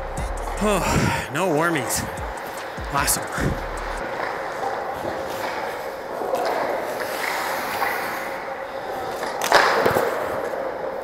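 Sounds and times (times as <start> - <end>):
skate blades scraping ice: 4.0 - 10.9.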